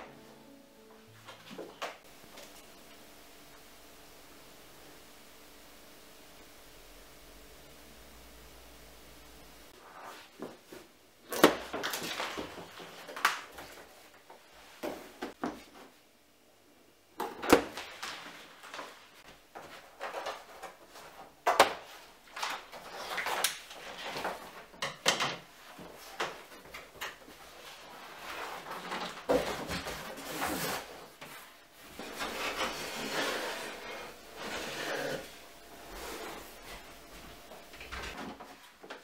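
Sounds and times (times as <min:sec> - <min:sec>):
cardboard scraping and rustling: 0:27.6 - 0:38.8.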